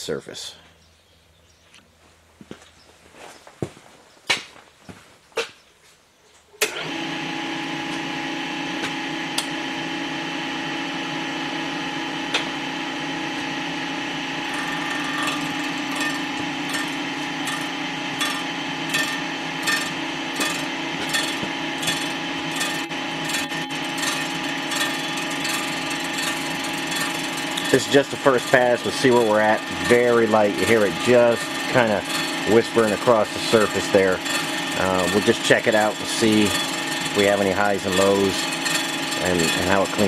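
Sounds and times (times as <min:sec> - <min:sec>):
resurfacing machine running: 0:06.6 - 0:40.0
light regular ticking of cutter: 0:14.5 - 0:40.0.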